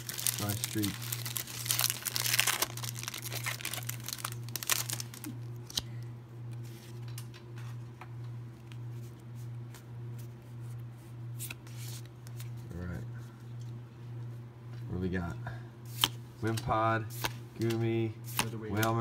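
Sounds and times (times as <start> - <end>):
foil wrapper crinkling and tearing: 0.0 - 5.8
cards clicking: 15.9 - 19.0.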